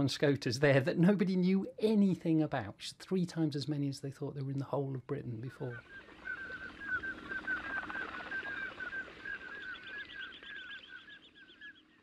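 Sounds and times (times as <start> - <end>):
ducks piping whistles: 5.7 - 12.0.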